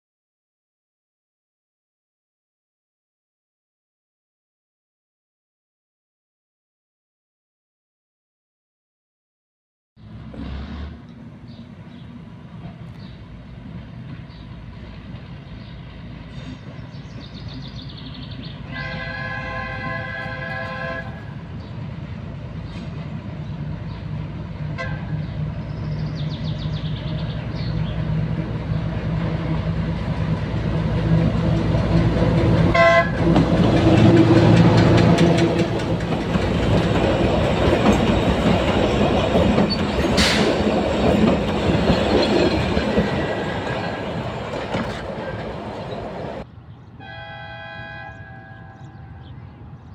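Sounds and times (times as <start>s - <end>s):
train horn blasts: 18.7s - 21.5s, 24.7s - 25.3s, 32.7s - 33.4s, 34.0s - 35.8s, 47.0s - 49.7s
wheels clicking over rail joints: 28.2s - 46.4s.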